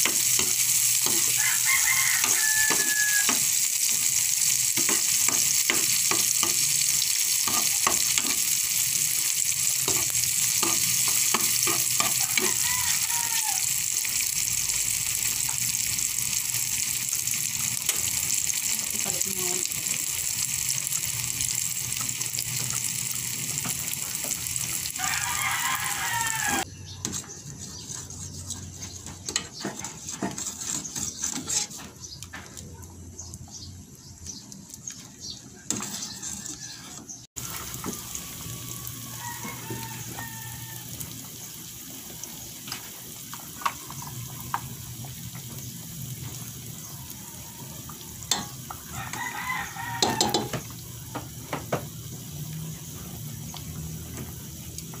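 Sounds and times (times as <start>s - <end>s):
vegetables sizzling in oil: 0.0s - 29.8s, 35.2s - 55.0s
rooster crowing: 1.1s - 3.6s, 11.6s - 14.0s, 24.9s - 27.0s, 35.5s - 41.3s, 46.8s - 50.6s.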